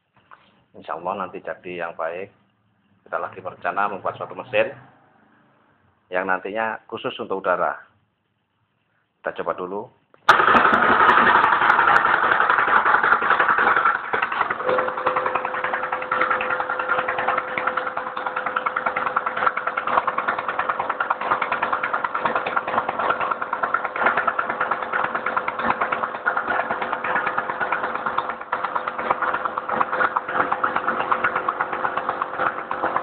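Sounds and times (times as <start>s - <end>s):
air-powered engine running unevenly: 10.3s - 33.0s
steady tone: 14.6s - 19.2s.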